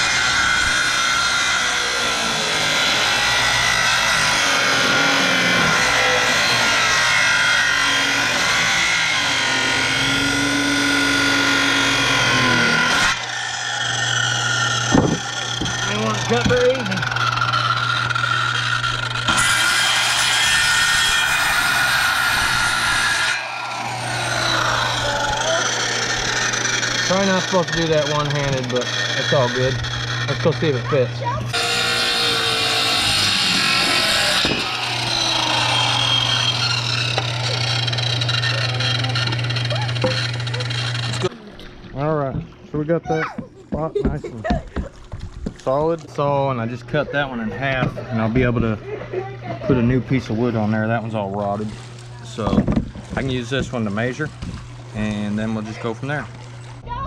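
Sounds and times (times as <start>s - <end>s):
saw running free: 0.0s - 41.5s
circular saw cutting wood: 0.0s - 42.6s, 45.7s - 57.0s.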